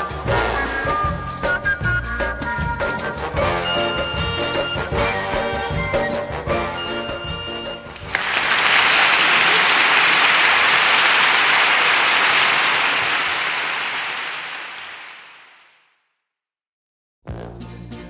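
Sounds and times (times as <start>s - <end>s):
background music: 0.0s - 8.0s, 17.3s - 18.0s
crowd applause: 7.8s - 15.8s.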